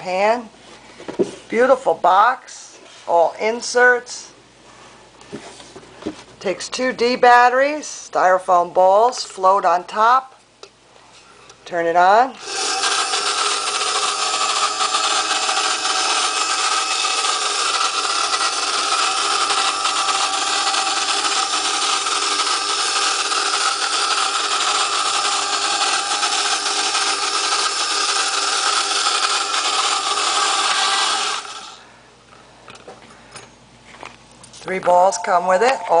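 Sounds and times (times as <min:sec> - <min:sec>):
toy motor and fan whirring: 0:12.4 - 0:31.8.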